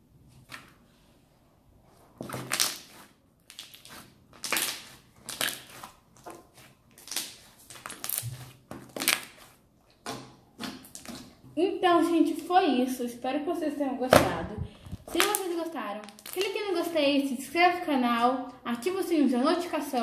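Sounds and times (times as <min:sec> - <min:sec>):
slime squelching: 0:02.0 - 0:11.5, 0:14.2 - 0:16.9.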